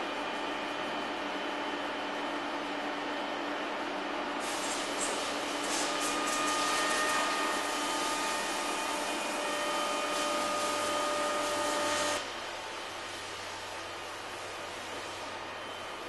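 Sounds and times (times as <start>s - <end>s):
motor whining and hissing: 4.6s - 12.2s.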